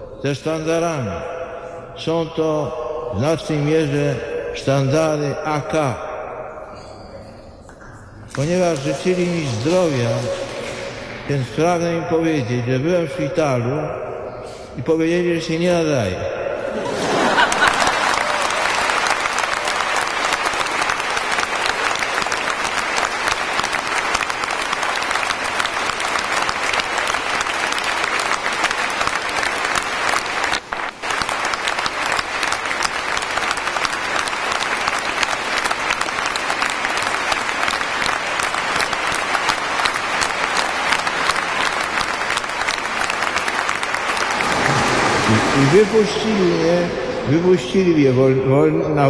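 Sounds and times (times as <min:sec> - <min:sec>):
large crowd applauding: 0:08.3 - 0:11.5, 0:16.8 - 0:48.0.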